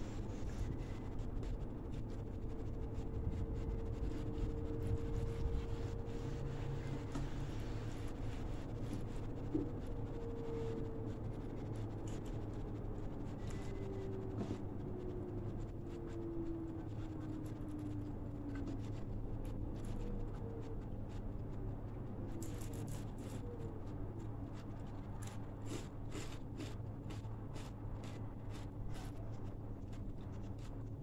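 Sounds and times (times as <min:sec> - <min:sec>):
low steady hum: 0:00.0 - 0:31.0
fingers tearing crisp fried fish: 0:25.2 - 0:29.1.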